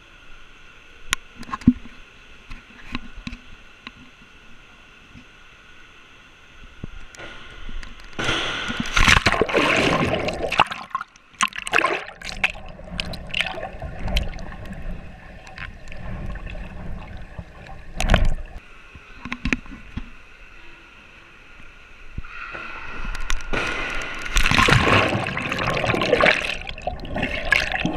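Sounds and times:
splashing water: 8.8s - 18.6s, 23.5s - 27.9s.

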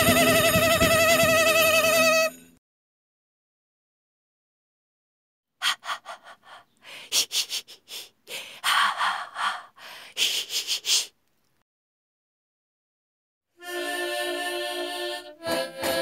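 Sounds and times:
person sniffing and huffing: 5.6s - 11.2s.

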